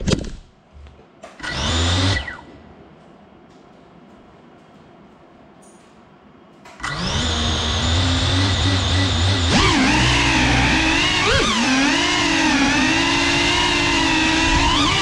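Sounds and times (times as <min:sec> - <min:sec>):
drone motors whining: 0:06.8 - 0:15.0.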